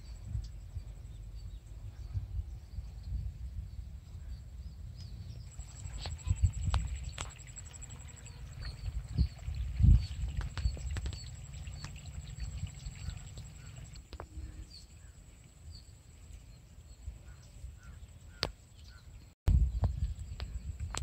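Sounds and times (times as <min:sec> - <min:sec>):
small birds chirping: 0:00.0 - 0:21.0
wind rumble on microphone: 0:00.0 - 0:21.0
steady high-pitched whine: 0:04.2 - 0:09.4.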